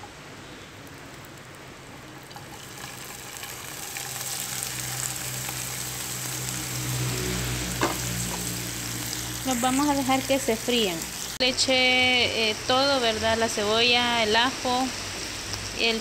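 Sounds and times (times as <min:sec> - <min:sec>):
oysters sizzling in hot oil: 0:00.8 - 0:11.4.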